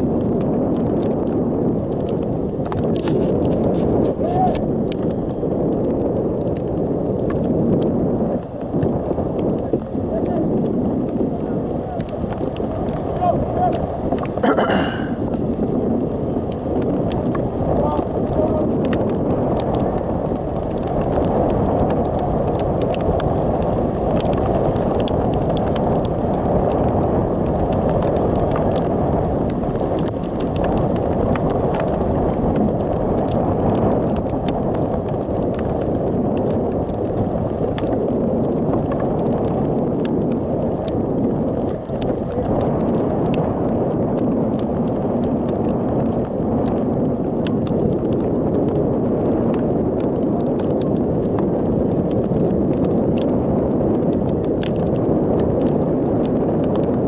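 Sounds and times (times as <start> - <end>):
wind buffeting microphone: 0.0 - 57.0
faint clicks: 12.0 - 14.6.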